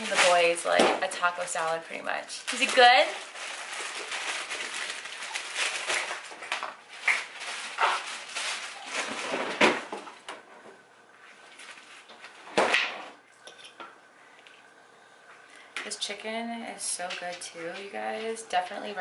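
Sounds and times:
items clattering in refrigerator: 0:02.5 - 0:10.8.

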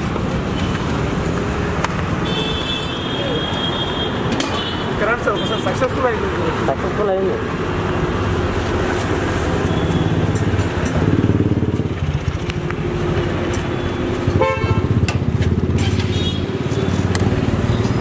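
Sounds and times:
road traffic: 0:00.0 - 0:18.0
motorcycle engine: 0:09.5 - 0:18.0.

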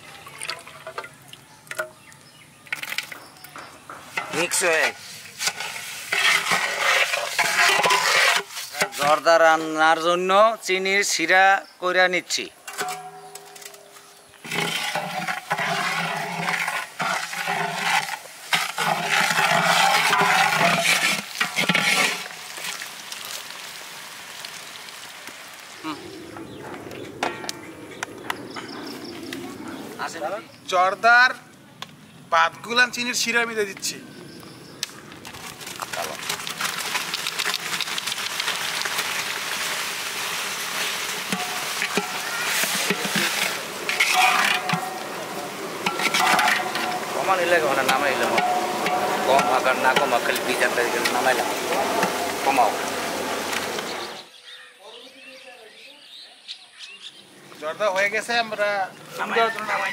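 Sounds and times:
syrup sizzling and bubbling: 0:00.0 - 0:10.3, 0:14.0 - 0:30.3, 0:34.2 - 0:54.4
metal spatula scraping pot: 0:04.1 - 0:09.2, 0:12.6 - 0:22.8, 0:40.8 - 0:52.5
rice sliding from colander: 0:05.4 - 0:09.0, 0:14.4 - 0:22.3, 0:40.8 - 0:52.5.

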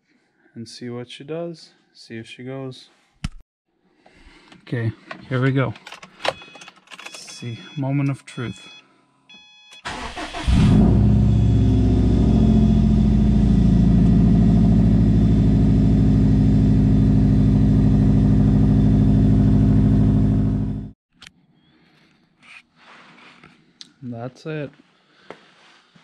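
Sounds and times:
car engine cranking and idling: 0:09.9 - 0:20.9.

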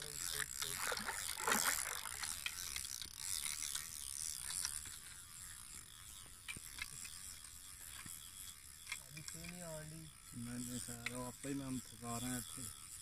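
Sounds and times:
fishing reel ratcheting whir: 0:00.0 - 0:13.0
small clicks: 0:00.4 - 0:09.6.

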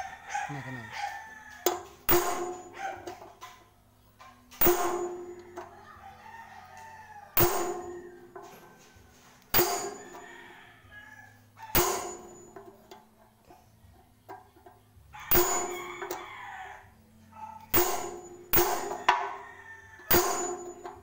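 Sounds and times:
hammer clanging on steel bar: 0:01.6 - 0:03.6, 0:04.2 - 0:05.6, 0:07.4 - 0:08.8, 0:09.5 - 0:10.3, 0:11.7 - 0:13.0, 0:15.3 - 0:16.2, 0:17.7 - 0:19.4, 0:20.1 - 0:21.0.

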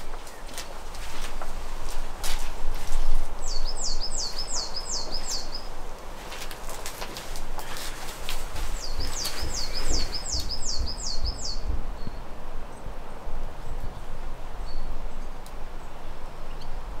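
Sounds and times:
songbird singing high notes: 0:03.4 - 0:05.7, 0:08.8 - 0:12.2.

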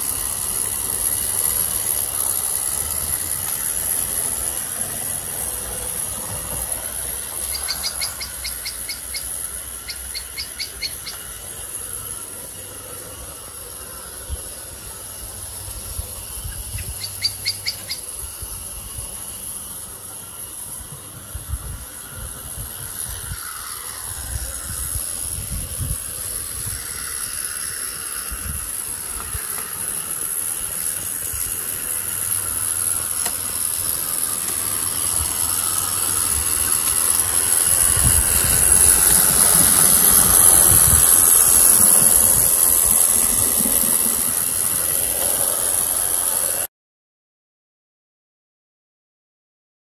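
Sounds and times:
steam burner hissing: 0:00.0 - 0:46.7
wheels rumbling on rails: 0:00.0 - 0:46.7
bird trilling: 0:07.2 - 0:11.4, 0:16.4 - 0:18.2.

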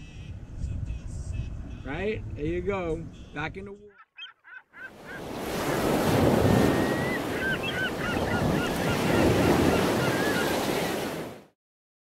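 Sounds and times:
high chirping calls: 0:03.9 - 0:05.9, 0:06.6 - 0:11.0
ocean waves washing: 0:04.9 - 0:11.5.

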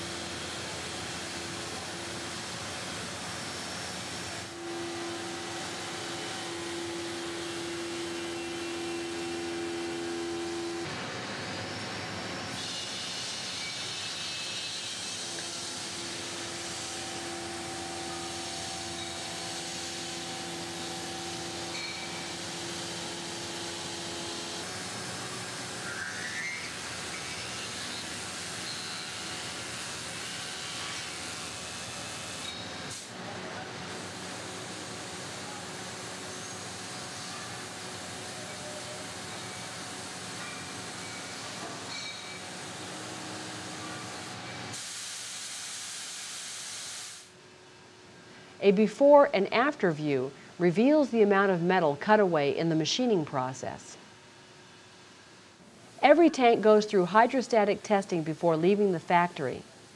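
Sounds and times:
machine tool hiss: 0:00.0 - 0:10.9, 0:12.4 - 0:33.2, 0:33.8 - 0:47.4
machine tool whine: 0:00.1 - 0:33.0, 0:35.2 - 0:44.8.

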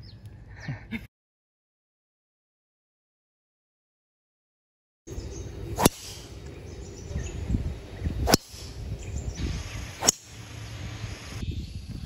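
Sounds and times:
golf driver striking ball: 0:05.7 - 0:06.4, 0:08.2 - 0:08.8, 0:10.0 - 0:10.4.

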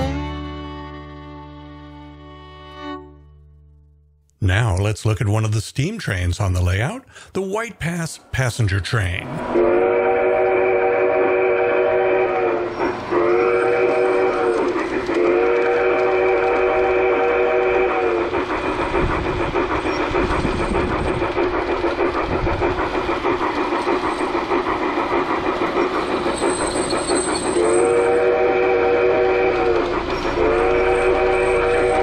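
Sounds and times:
model train chord whistle: 0:00.0 - 0:03.2, 0:09.5 - 0:18.4, 0:27.5 - 0:32.0
model train wheels clattering on track: 0:14.4 - 0:16.7, 0:18.2 - 0:28.0, 0:29.6 - 0:32.0.

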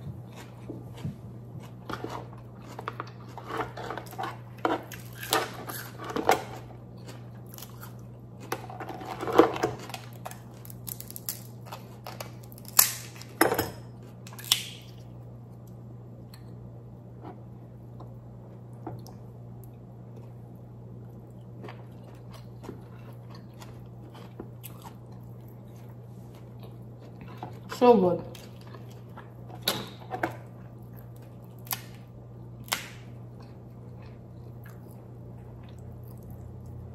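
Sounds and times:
low steady hum: 0:00.0 - 0:36.9
crab shell cracking: 0:10.0 - 0:13.3, 0:14.3 - 0:14.9, 0:31.0 - 0:33.2.

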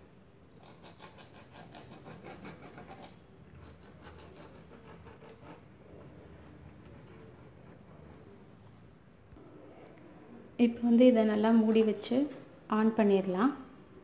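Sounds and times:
brush scratching on metal plates: 0:00.6 - 0:08.8.

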